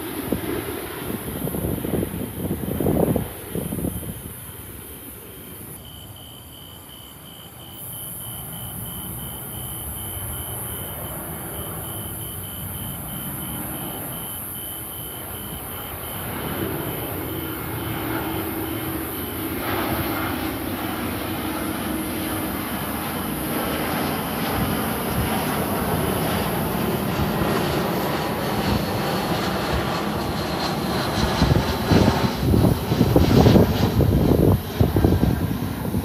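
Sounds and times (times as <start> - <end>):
jet airliner engine noise: 0.0 - 36.0
low engine whine: 8.4 - 36.0.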